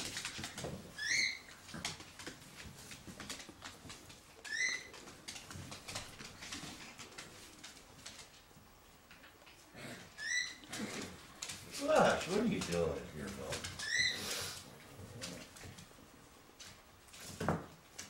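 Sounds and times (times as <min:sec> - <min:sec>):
paws clicking on wooden floor: 0:00.0 - 0:18.0
puppy yips: 0:01.0 - 0:01.5, 0:04.4 - 0:05.0.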